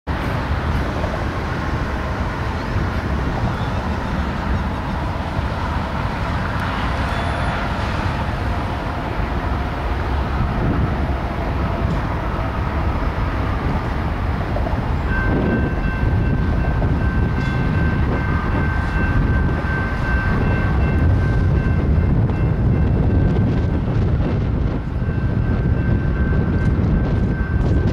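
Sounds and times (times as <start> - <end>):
diesel locomotives rumbling: 0.1 - 27.9
high-pitched squeal: 3.3 - 8.6.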